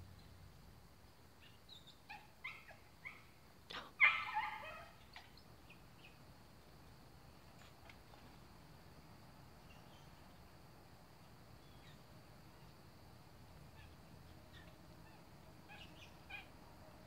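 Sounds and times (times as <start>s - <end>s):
blue jay harsh calls: 13.7s - 16.6s.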